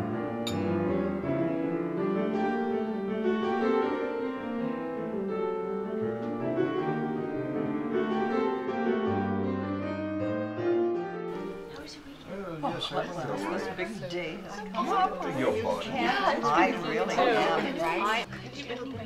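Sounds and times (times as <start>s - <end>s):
classical piano music: 0.0s - 12.2s.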